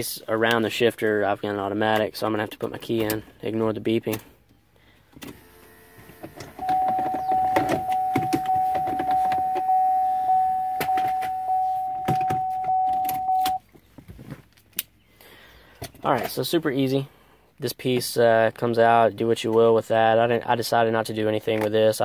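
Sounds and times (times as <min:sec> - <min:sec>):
car warning chime beeping: 0:06.6 - 0:13.6.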